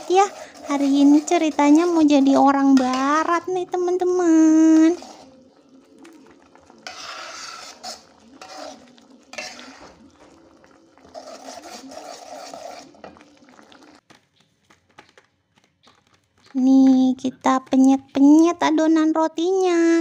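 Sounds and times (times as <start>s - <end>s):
metal spatula scraping a wok: 0.0s - 5.5s, 6.7s - 13.3s.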